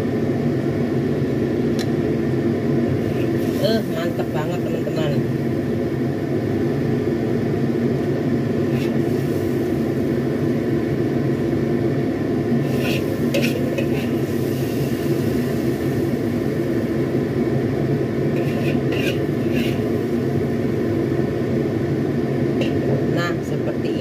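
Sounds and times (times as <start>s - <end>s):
steady low hum: 0.0s - 24.0s
metal spatula scraping wok: 8.6s - 9.4s, 12.6s - 15.1s, 18.3s - 20.0s.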